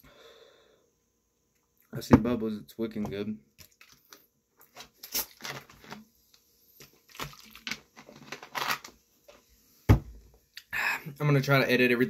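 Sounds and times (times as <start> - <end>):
rustling and clicking handling noises: 3.6 - 9.4.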